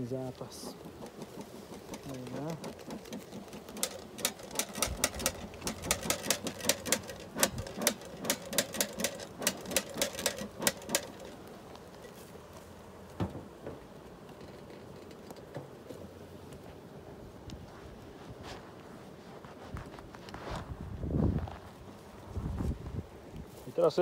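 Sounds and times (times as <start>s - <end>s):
wooden hive frames knocking: 0.5s - 12.4s, 13.0s - 16.1s.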